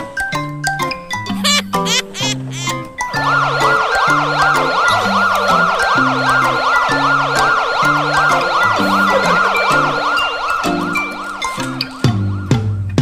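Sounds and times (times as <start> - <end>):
fast yelping siren: 2.5 - 12.5.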